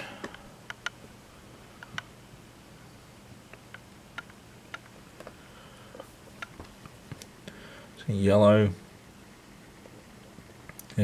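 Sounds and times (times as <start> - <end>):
low steady hum: 0.0 - 11.0
faint irregular clicks: 0.2 - 1.0, 1.8 - 2.1, 3.5 - 7.6, 9.8 - 11.0.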